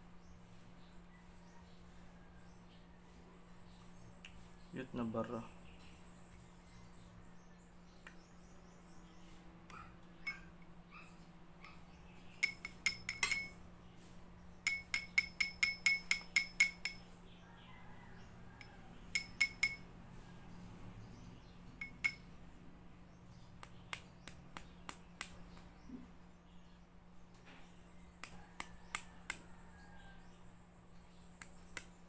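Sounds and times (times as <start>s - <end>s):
stick tapping glass cup rim: 12.4s - 13.6s, 14.6s - 17.1s, 19.1s - 19.9s, 21.8s - 22.3s.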